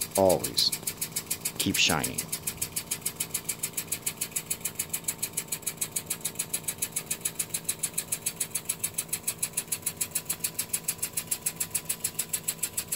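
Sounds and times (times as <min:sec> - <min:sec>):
small electric motor ticking: 0:00.0 - 0:12.9.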